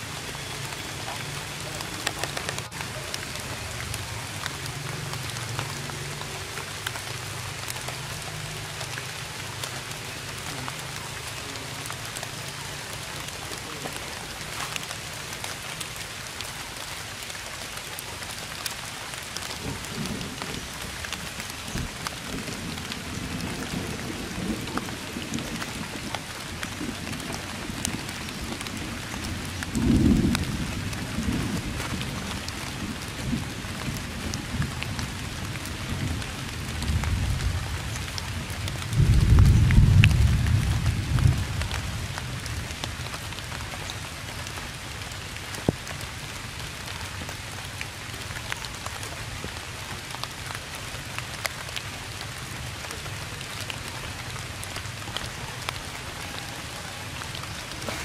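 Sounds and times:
steady rain falling: 0.0 - 58.0
low thunder rumbles: 19.4 - 43.1.

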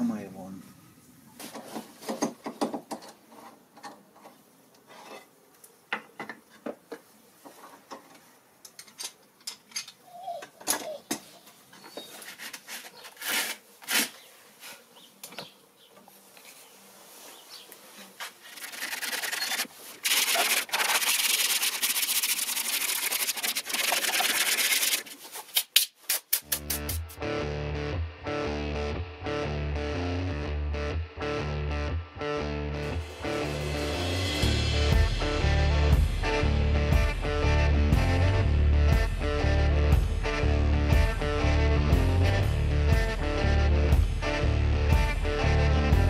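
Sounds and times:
sanding sponge scrubbing wood: 18.2 - 25.4.

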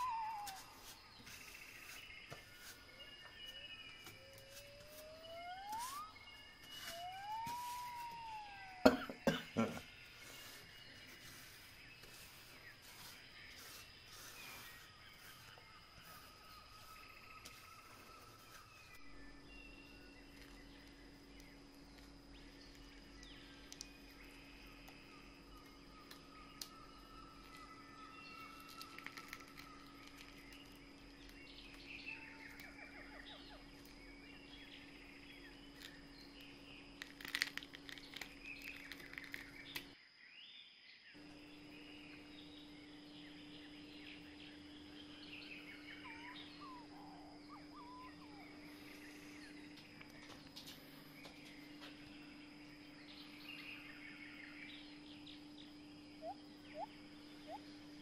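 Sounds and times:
birds chirping: 0.0 - 40.0, 40.6 - 58.0
steady high tone: 3.0 - 9.2.

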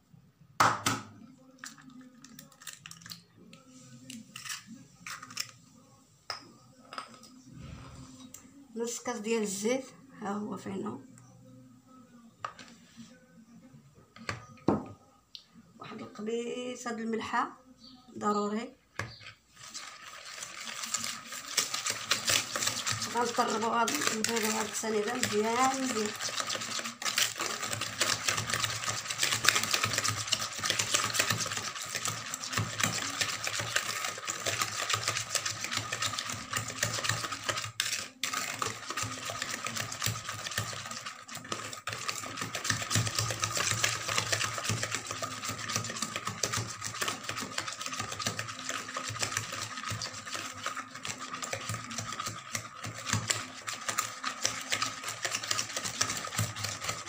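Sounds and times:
hand whisk clattering in bowl: 19.6 - 57.0.

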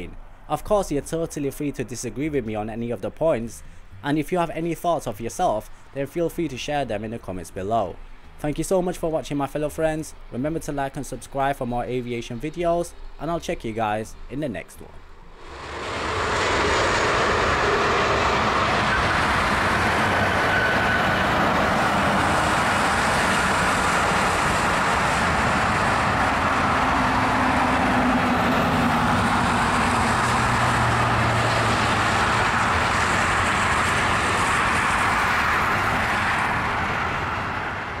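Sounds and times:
jet engines rushing: 15.2 - 38.0.

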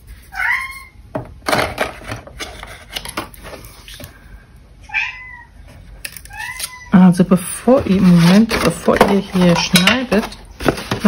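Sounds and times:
paper rustling and crackling: 7.4 - 11.0.

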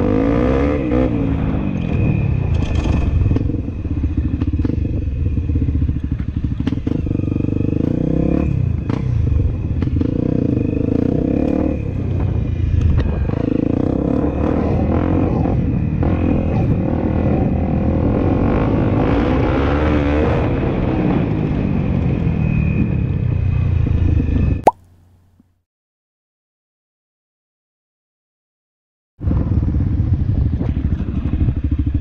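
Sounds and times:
motorcycle engine running: 0.9 - 16.8, 29.2 - 32.0.

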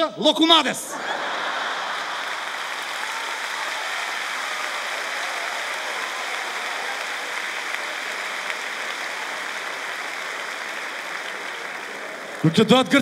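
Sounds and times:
audience laughing: 0.9 - 2.9
audience applauding: 1.0 - 13.0.

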